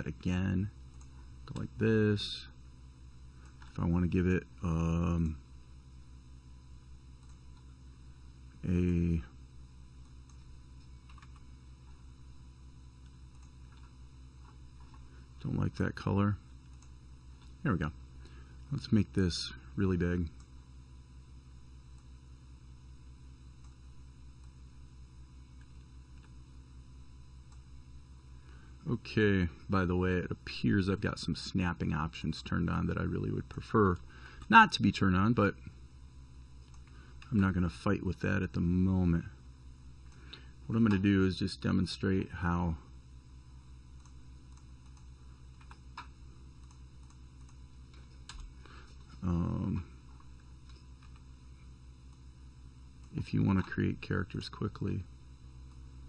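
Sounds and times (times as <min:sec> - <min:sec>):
low electrical hum: 0:00.0 - 0:56.0
faint clicks: 0:13.0 - 0:15.0, 0:44.0 - 0:49.2.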